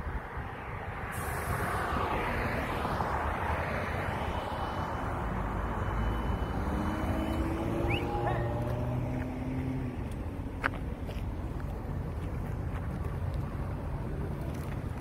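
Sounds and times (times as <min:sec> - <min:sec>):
engine and machinery noise: 0:00.0 - 0:15.0
short rising tone: 0:04.7 - 0:09.8.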